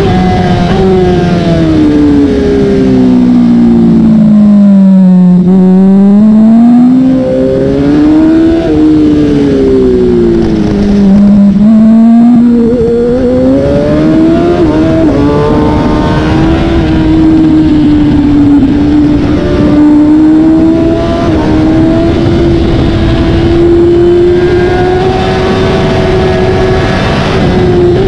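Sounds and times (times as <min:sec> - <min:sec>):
motorcycle engine revving: 0:00.0 - 0:28.0
wind rush: 0:07.0 - 0:28.0.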